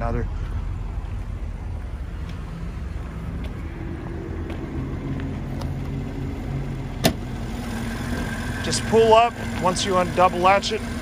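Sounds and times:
car engine idling: 0.0 - 11.0
faint footsteps: 0.3 - 6.6.

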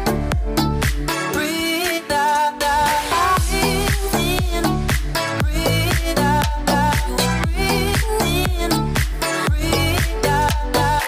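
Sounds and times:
deep kick drums: 0.0 - 1.1, 3.4 - 10.7
dance music with steady beat: 0.0 - 11.0.

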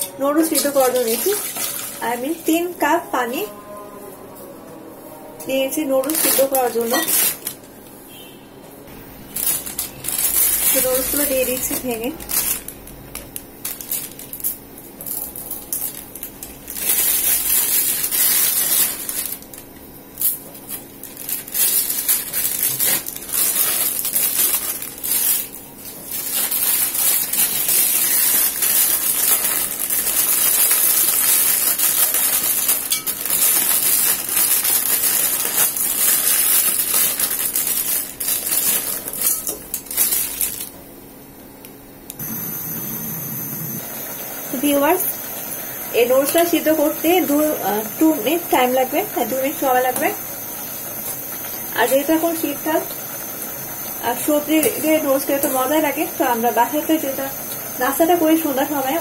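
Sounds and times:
plastic packets crinkling: 0.4 - 2.6, 6.0 - 7.8, 9.2 - 40.8
dry noodles crunching and rattling: 0.5 - 2.5, 6.0 - 7.8, 9.2 - 40.8.

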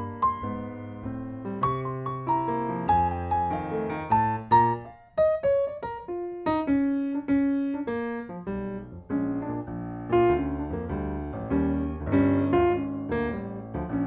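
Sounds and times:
solo piano music: 0.0 - 14.0.

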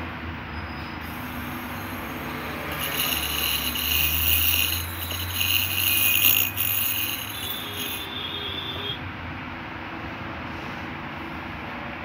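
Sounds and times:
dental scaler buzzing hiss: 1.1 - 8.2.

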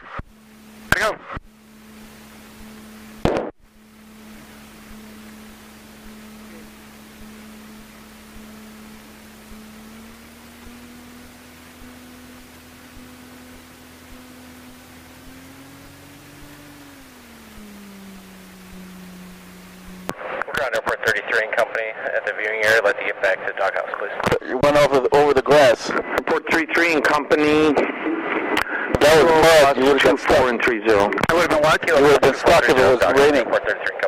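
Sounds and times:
aircraft engine droning: 0.0 - 23.6.

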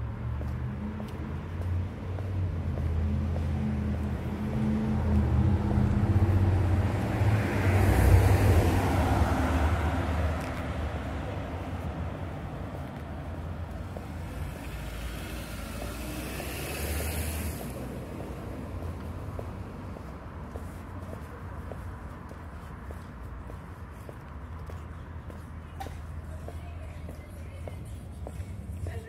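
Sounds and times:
vehicle engine passing by: 0.0 - 20.2
street noise: 0.0 - 29.0.

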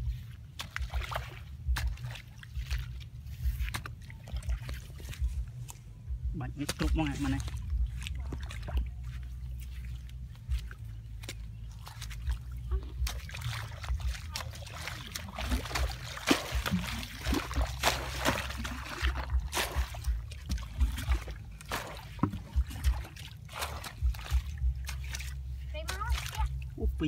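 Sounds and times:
water splashes and squelches: 0.0 - 27.0
hoe chopping and scraping mud: 14.9 - 25.1.

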